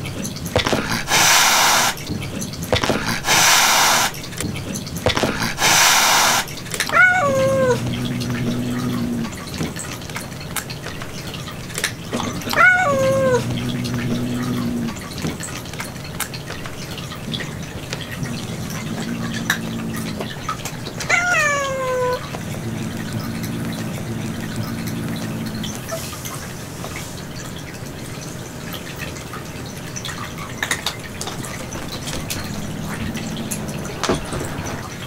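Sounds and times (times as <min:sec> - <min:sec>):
cat growling: 0:00.9 - 0:02.0, 0:03.1 - 0:04.1, 0:05.3 - 0:09.6, 0:12.2 - 0:15.2, 0:17.2 - 0:26.0, 0:31.5 - 0:35.0
cat yowl falling in pitch: 0:12.5 - 0:13.4, 0:21.1 - 0:22.2.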